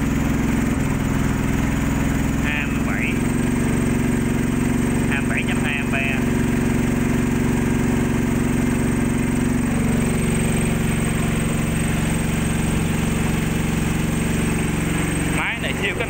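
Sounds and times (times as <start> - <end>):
generator engine running: 0.0 - 16.0.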